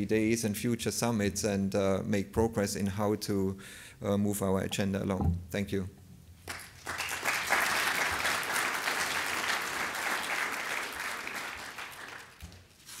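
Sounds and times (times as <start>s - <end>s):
audience applauding: 6.4s - 12.7s.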